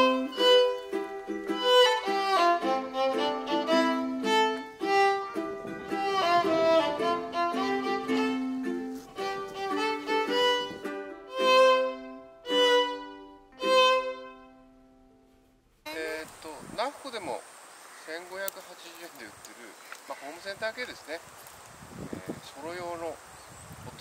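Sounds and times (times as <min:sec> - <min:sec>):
melody over held notes: 0:00.0 - 0:15.1.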